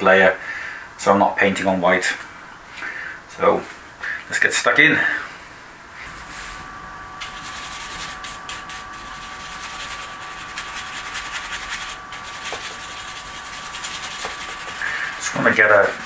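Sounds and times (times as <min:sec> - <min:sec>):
bristle brush scrubbing canvas: 0:06.0 - 0:16.0.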